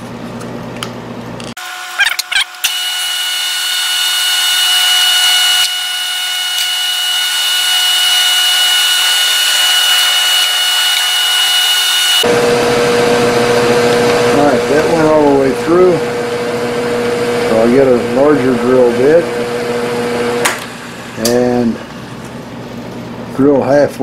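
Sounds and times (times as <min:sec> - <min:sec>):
drill press whining: 0:01.6 - 0:23.0
drill squeaks: 0:01.9 - 0:12.2.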